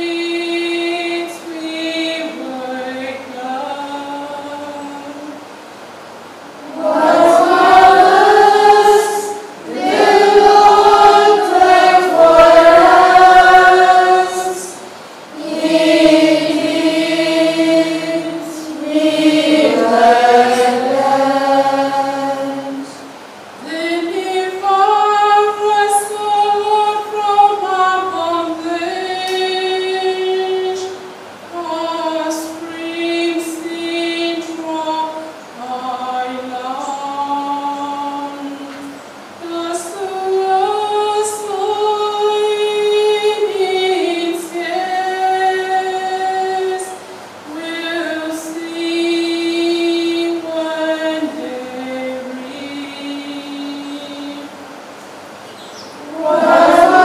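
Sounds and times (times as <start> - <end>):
psalm sung to chant melody: 0.0 - 57.0.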